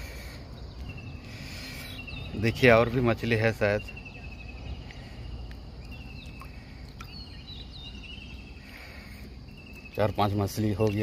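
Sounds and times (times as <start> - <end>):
short bird calls: 0.0 - 10.2
insect trill: 0.0 - 11.0.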